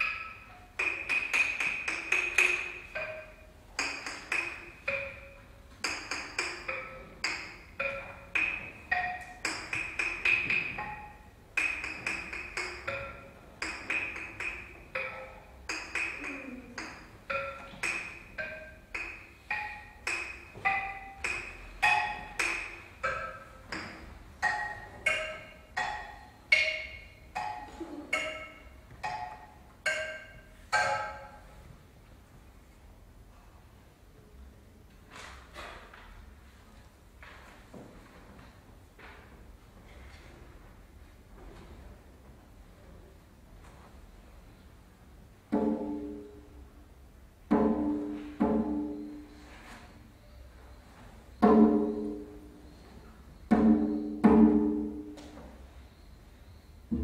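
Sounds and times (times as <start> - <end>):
xylophone notes: 0.0 - 31.4.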